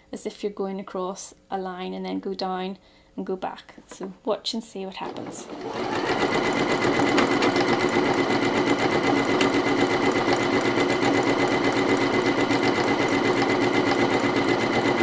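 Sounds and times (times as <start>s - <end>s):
sewing machine stitching: 5.0s - 15.0s.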